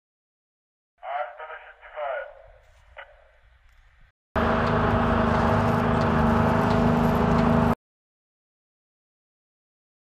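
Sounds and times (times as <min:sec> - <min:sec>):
vehicle engine humming: 0:03.7 - 0:07.8.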